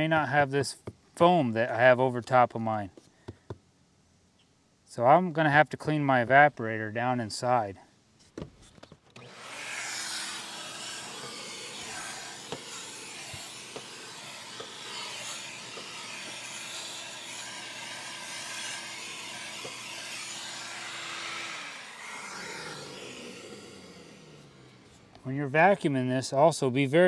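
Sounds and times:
vacuum motor winding down: 0:09.2 - 0:25.2
shop vac running: 0:09.2 - 0:25.3.

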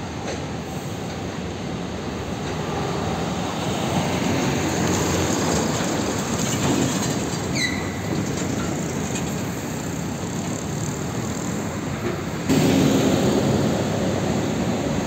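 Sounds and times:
truck passing by: 0:03.6 - 0:15.0.

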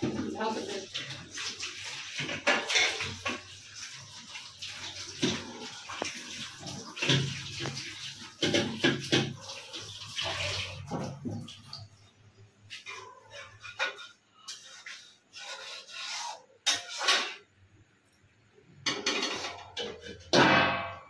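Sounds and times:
tap water splashing on utensils: 0:00.0 - 0:21.0
steel dishes clinking: 0:02.2 - 0:03.5, 0:18.9 - 0:21.0.

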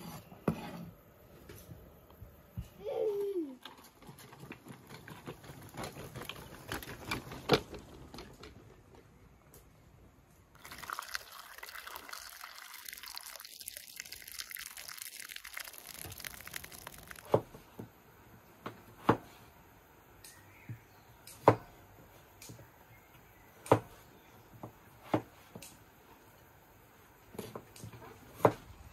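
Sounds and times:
water pouring into a bowl: 0:10.6 - 0:17.4.

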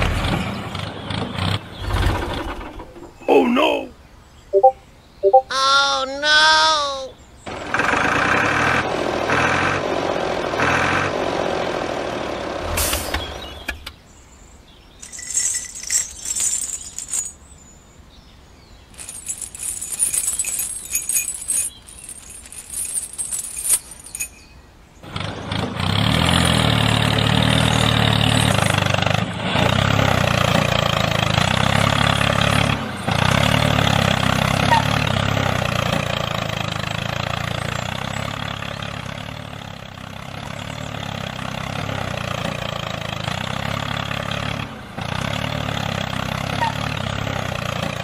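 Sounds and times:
small engine running: 0:07.5 - 0:12.8, 0:25.0 - 0:28.9.

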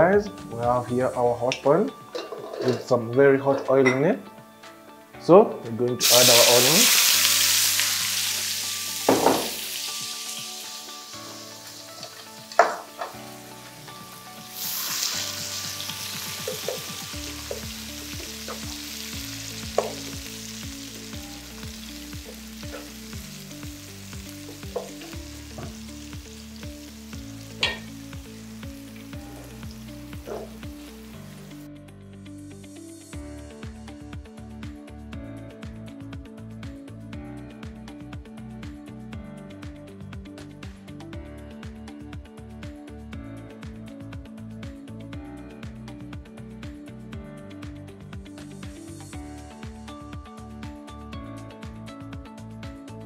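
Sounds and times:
onions sizzling in hot oil: 0:06.0 - 0:31.6.

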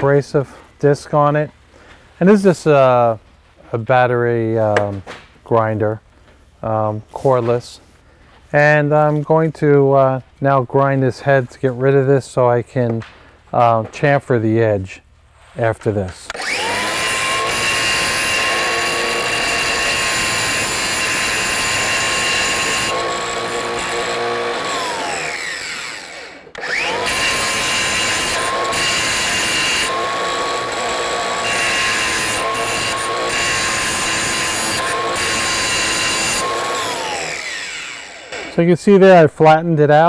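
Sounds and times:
angle grinder grinding metal: 0:16.3 - 0:38.6.

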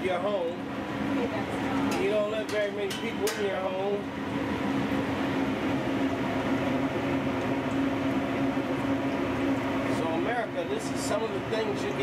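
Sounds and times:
machine hum: 0:00.0 - 0:12.0
oil sizzling in deep fryer: 0:00.0 - 0:12.0.

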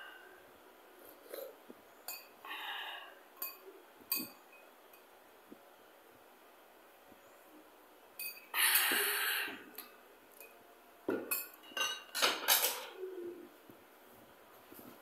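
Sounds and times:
dishes knocking and clinking: 0:11.1 - 0:13.0.

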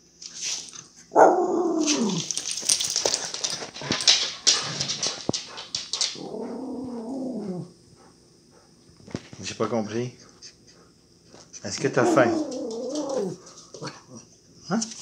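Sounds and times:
dog whining: 0:01.2 - 0:02.4, 0:06.2 - 0:07.8, 0:11.9 - 0:13.4.

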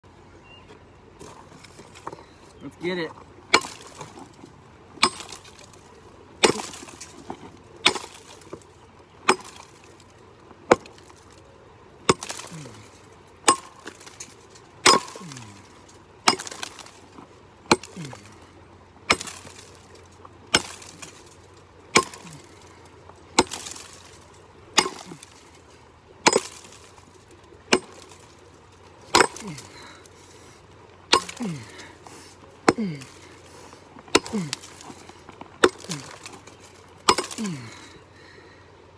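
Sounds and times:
pickaxe striking rock: 0:03.5 - 0:04.2, 0:05.0 - 0:05.8, 0:06.4 - 0:08.6, 0:09.2 - 0:09.9, 0:10.7 - 0:11.2, 0:12.1 - 0:12.8, 0:13.4 - 0:15.6, 0:16.3 - 0:17.0, 0:17.7 - 0:18.3, 0:19.1 - 0:21.3, 0:21.9 - 0:22.5, 0:23.4 - 0:24.2, 0:24.8 - 0:25.4, 0:26.2 - 0:26.9, 0:27.7 - 0:28.2, 0:29.1 - 0:29.8, 0:31.1 - 0:31.9, 0:32.7 - 0:33.3, 0:34.1 - 0:35.0, 0:35.6 - 0:37.7.

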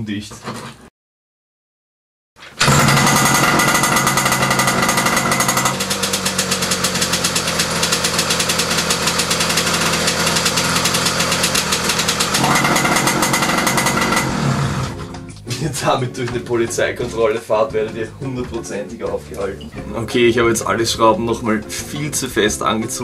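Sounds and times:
moped two-stroke engine running: 0:02.6 - 0:15.3.

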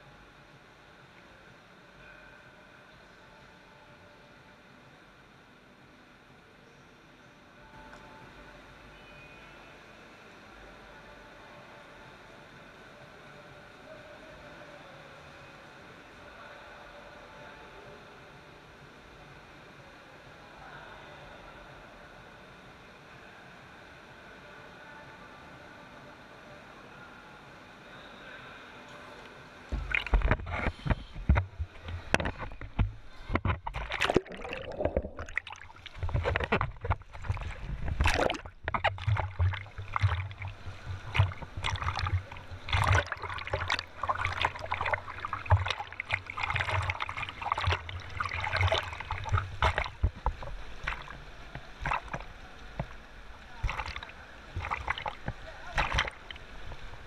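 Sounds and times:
pool water splashing: 0:29.7 - 0:57.0.

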